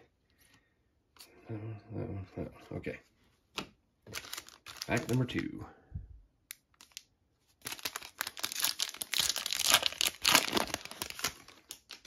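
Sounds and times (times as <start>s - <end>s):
foil wrapper tearing and crinkling: 4.1s - 5.3s, 6.7s - 7.0s, 7.6s - 12.0s.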